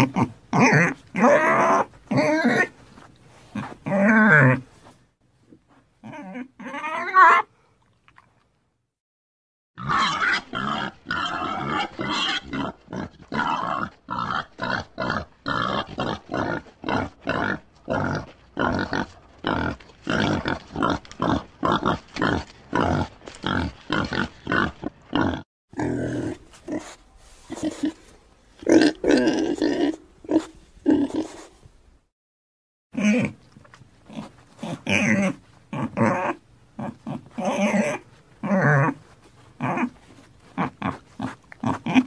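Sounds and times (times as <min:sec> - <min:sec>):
pig grunting: 0:00.0 - 0:02.7, 0:09.8 - 0:28.0, 0:34.1 - 0:39.0, 0:39.6 - 0:42.0.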